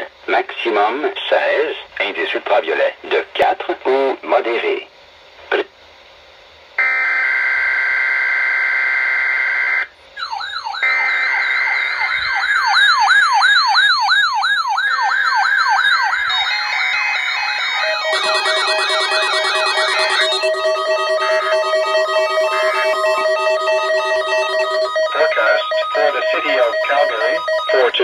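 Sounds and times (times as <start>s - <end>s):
warbling siren tones: 6.8s - 28.0s
beeping tones: 16.0s - 28.0s
steady alert tone: 16.1s - 28.0s.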